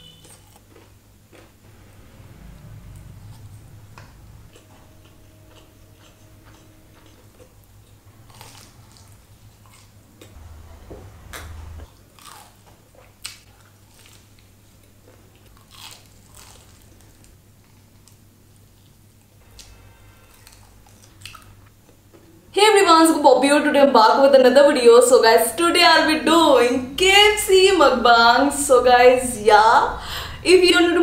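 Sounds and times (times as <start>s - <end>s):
chewing crispy fried chicken: 0.1s - 1.6s, 4.5s - 10.4s, 11.9s - 19.0s, 19.6s - 22.2s.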